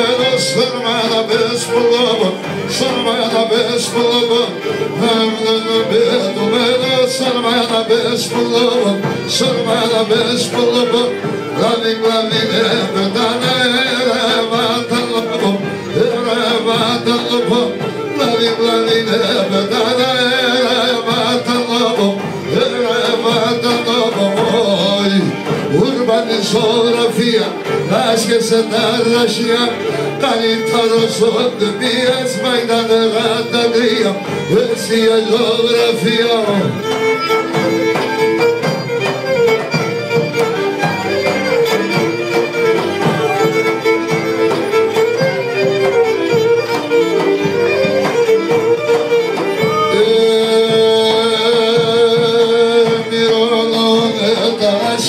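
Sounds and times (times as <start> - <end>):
man singing through microphone: 0.0 - 37.2, 49.4 - 55.0
bowed lyra melody: 0.0 - 55.0
large drum beat: 0.0 - 55.0.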